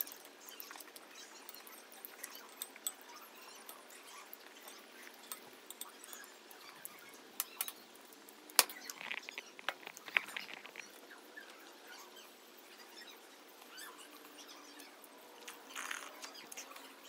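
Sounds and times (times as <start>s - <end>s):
metal spoon clinking ceramic bowl: 1.6s - 6.7s.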